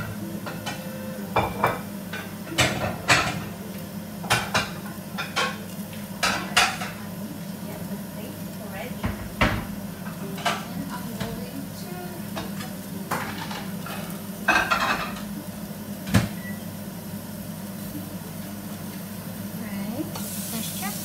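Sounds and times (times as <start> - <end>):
pots and utensils clinking: 0.0 - 7.2, 8.9 - 15.4
fish sizzling in a pan: 0.0 - 21.0.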